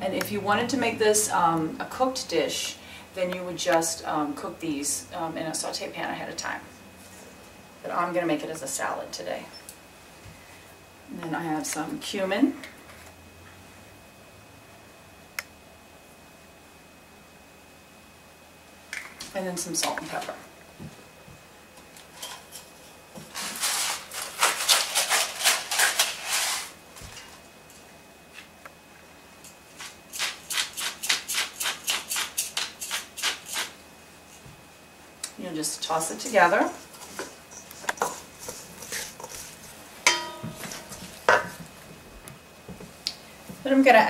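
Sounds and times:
pepper mill grinding: 23.6 - 26.7, 29.8 - 33.7
spoon scraping and squishing salad: 36.9 - 41.4
spoon knocking metal bowl: 40.1 - 41.6.

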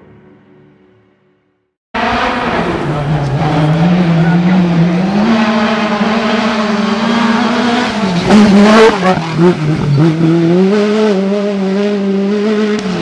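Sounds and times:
rally car engine accelerating: 2.0 - 13.0.

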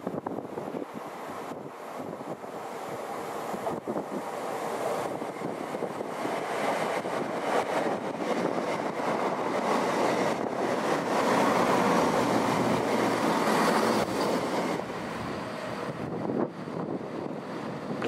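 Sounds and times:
train wheels on rail: 0.0 - 18.0.

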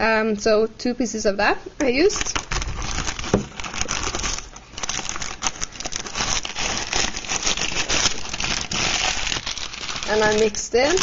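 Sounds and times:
wrapping crackling and rustling: 1.9 - 11.0.

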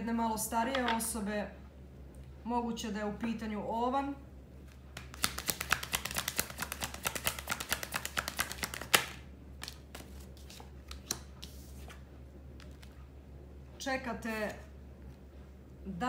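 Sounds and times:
playing cards being shuffled: 4.7 - 13.0
card snap: 5.0 - 9.8
cards tapping: 5.0 - 11.6.

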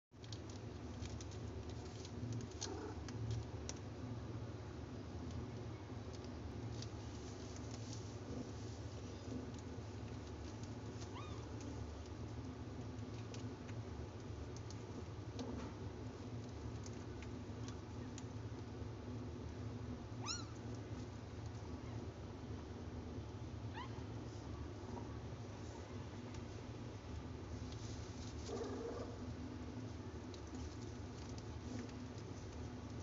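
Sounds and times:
steady low hum: 0.2 - 33.0
kittens rustling on cloth: 6.6 - 13.5, 27.4 - 33.0.

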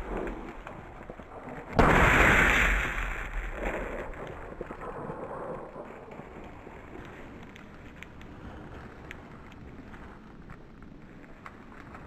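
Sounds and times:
shotgun shot: 1.8 - 4.2.

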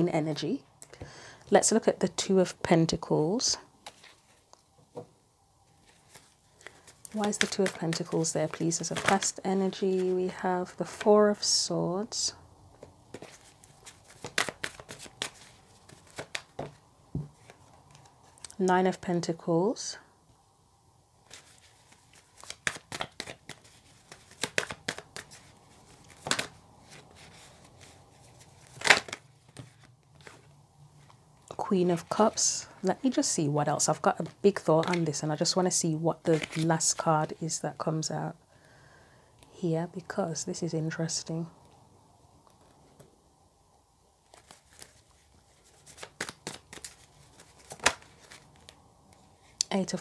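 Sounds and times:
playing cards being shuffled: 3.8 - 4.5, 5.8 - 11.1, 12.8 - 18.5, 21.2 - 32.4, 34.2 - 35.6, 36.2 - 37.4, 44.2 - 49.3.

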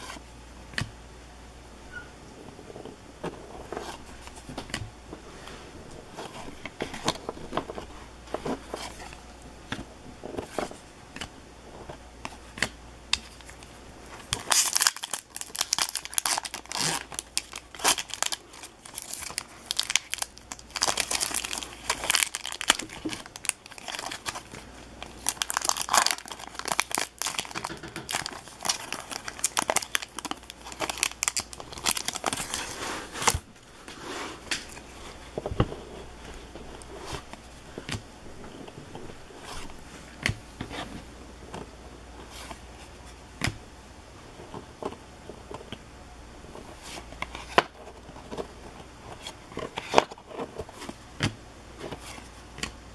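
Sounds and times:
foil wrapper crinkling and tearing: 13.3 - 33.4.

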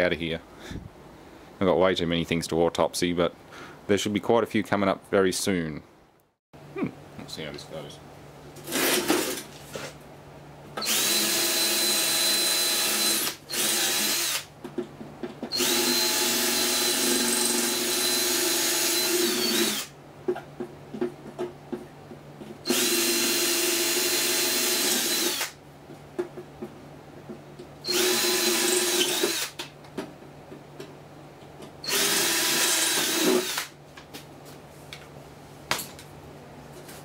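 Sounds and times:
cordless drill whine: 10.8 - 14.4, 15.5 - 19.9, 22.7 - 25.5, 27.9 - 29.5, 31.8 - 33.7.

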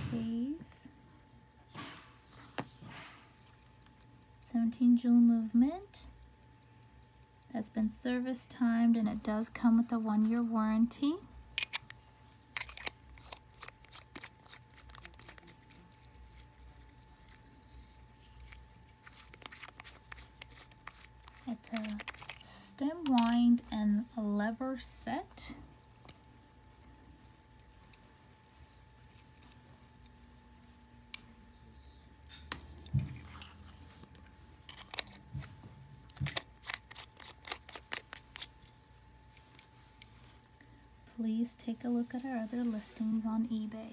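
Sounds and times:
clicks and scraping on watch case: 11.5 - 23.4, 32.2 - 40.5.

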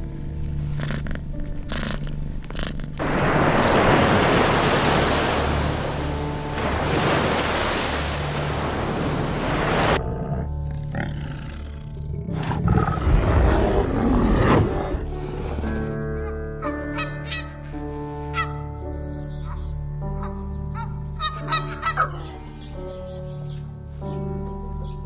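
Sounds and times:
low droning music: 0.0 - 25.0
surf washing on a beach: 3.0 - 10.0
low rough growling: 10.0 - 16.0.

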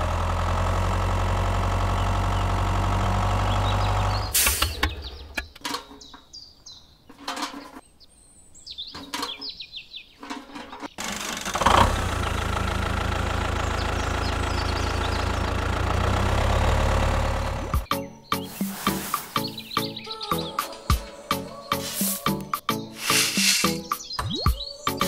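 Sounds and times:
tractor engine idling: 0.0 - 5.6, 10.9 - 17.9
birds chirping: 1.9 - 11.0, 12.0 - 25.0
sand buckets clicking and scraping: 7.0 - 7.9, 8.9 - 11.8, 18.3 - 24.1.

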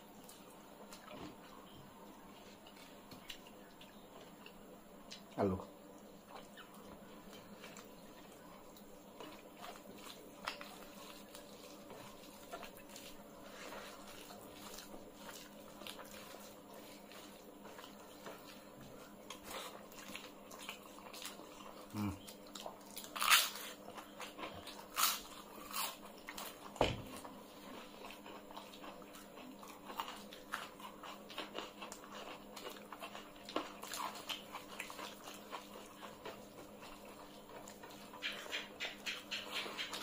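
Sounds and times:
people chewing food: 0.0 - 40.0
crunchy bites: 22.9 - 27.0.

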